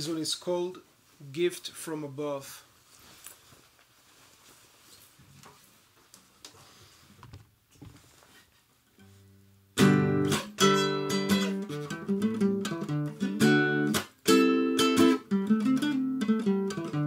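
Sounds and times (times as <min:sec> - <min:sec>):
classical guitar fingerpicking: 0:09.8 - 0:17.0.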